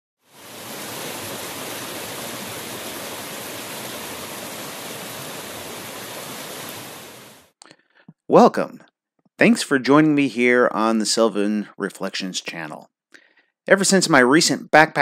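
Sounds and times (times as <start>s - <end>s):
stream rushing over rocks: 0.3s - 7.5s.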